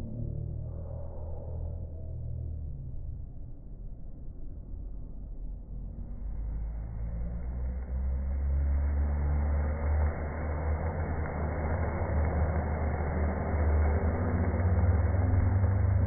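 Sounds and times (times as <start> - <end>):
flame rushing on a grill: 7.2 - 16.0.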